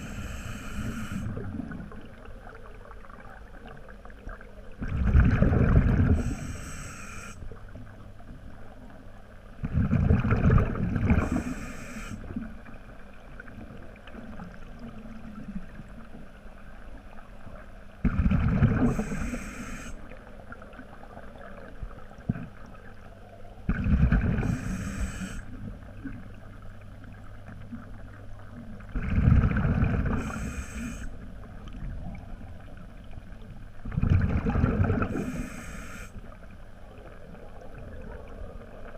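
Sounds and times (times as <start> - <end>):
diver breathing with bubbling: 0.0 - 1.9, 4.8 - 7.4, 9.6 - 12.3, 18.1 - 20.0, 23.7 - 25.6, 29.0 - 31.2, 33.9 - 36.2.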